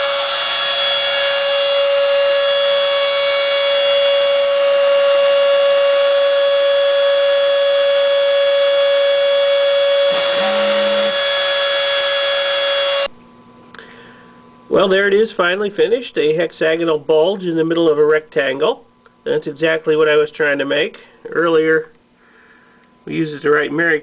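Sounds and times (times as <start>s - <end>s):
router spindle motor whine: 0.0s - 13.1s
low hum: 9.5s - 14.6s.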